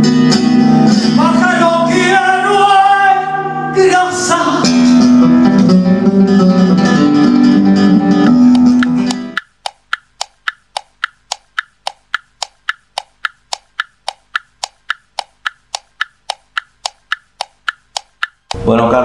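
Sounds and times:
clock ticking: 8.3 - 18.6.

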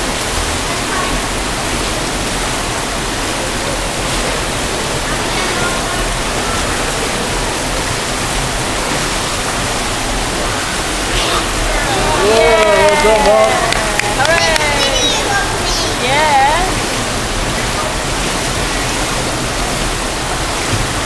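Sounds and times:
rushing water noise: 0.0 - 21.0.

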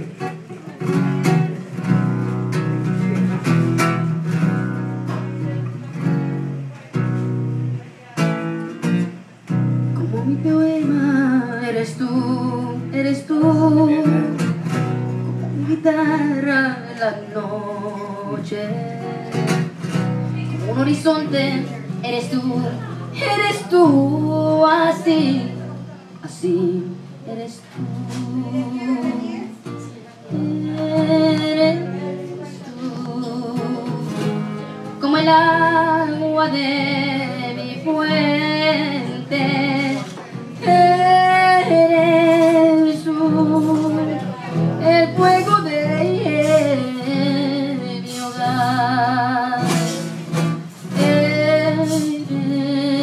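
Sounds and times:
guitar accompaniment: 0.0 - 53.0
woman singing with vibrato: 9.8 - 14.8, 15.4 - 19.7, 20.3 - 53.0.

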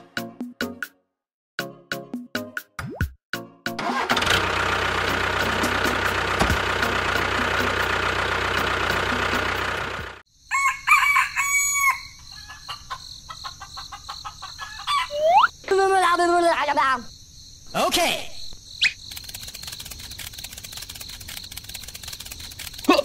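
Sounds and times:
motor running: 4.1 - 10.2, 19.1 - 23.0
high insect trill: 10.3 - 23.0.

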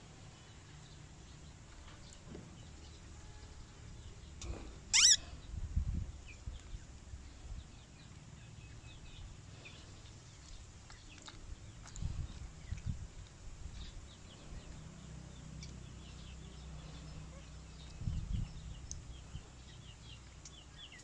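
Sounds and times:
baby monkey squealing: 4.9 - 5.2.

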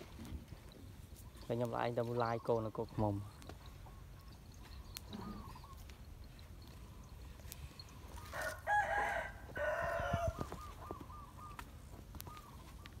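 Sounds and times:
rooster crowing: 8.2 - 10.7.

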